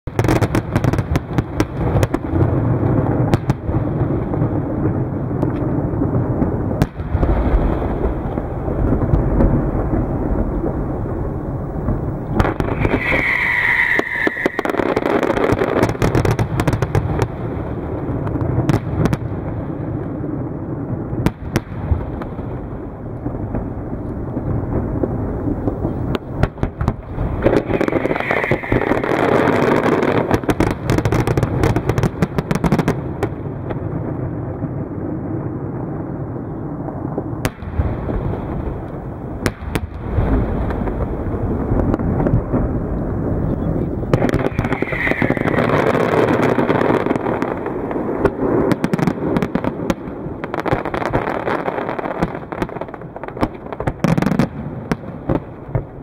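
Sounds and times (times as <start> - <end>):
fireworks bangs and crackling: 0.0 - 56.0
falling whistle: 12.7 - 14.8, 27.7 - 29.0, 44.5 - 45.6.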